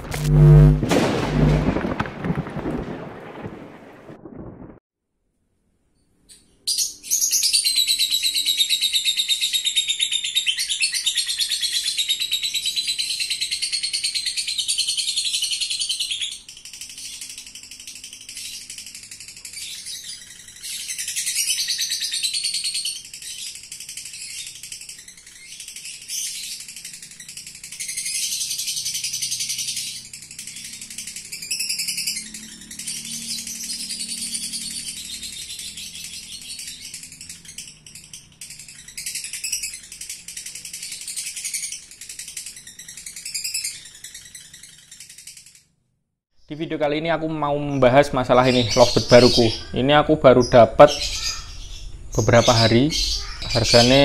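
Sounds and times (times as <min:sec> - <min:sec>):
lovebird chattering trill: 0:06.7 - 0:45.6, 0:47.7 - 0:54.0.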